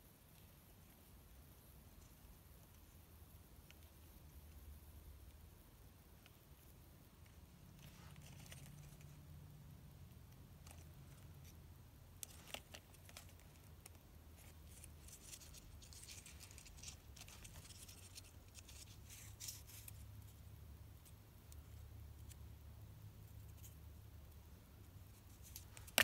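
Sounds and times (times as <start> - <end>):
low room hum: 0.0 - 26.0
paper rustling and clicking: 25.4 - 26.0.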